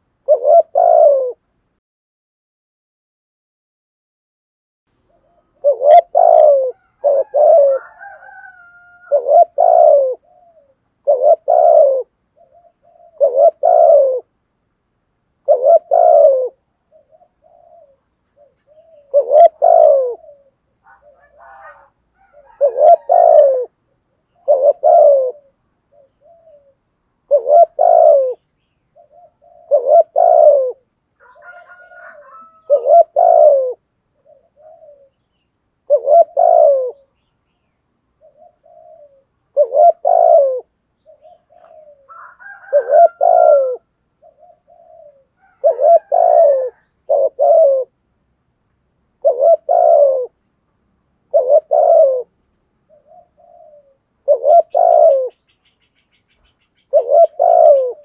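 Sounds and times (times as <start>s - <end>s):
dove cooing: 0.0s - 1.6s, 5.0s - 14.4s, 15.4s - 37.3s, 38.1s - 48.0s, 49.1s - 50.5s, 51.2s - 58.0s
bird chirps: 15.5s - 30.6s, 40.9s - 47.5s, 52.4s - 58.0s.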